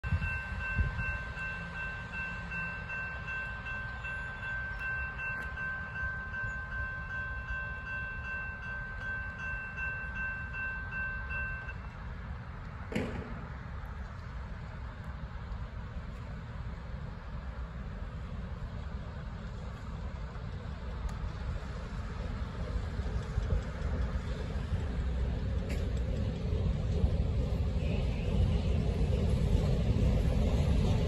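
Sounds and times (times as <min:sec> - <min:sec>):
crossing bell ringing: 0:00.0 - 0:12.3.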